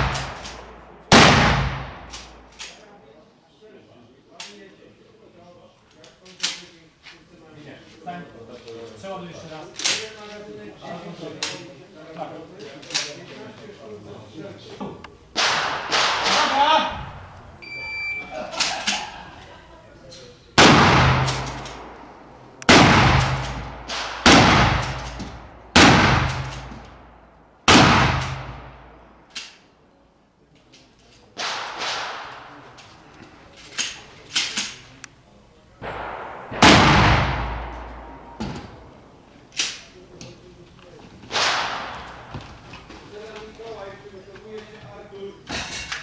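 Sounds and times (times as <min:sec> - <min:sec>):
echoing gunshots: 0:00.0 - 0:02.6, 0:15.3 - 0:17.4, 0:20.6 - 0:29.2, 0:31.4 - 0:32.8, 0:35.8 - 0:39.2, 0:41.3 - 0:42.4
faint sharp cracks: 0:00.0 - 0:02.9, 0:20.1 - 0:29.7, 0:35.8 - 0:43.8.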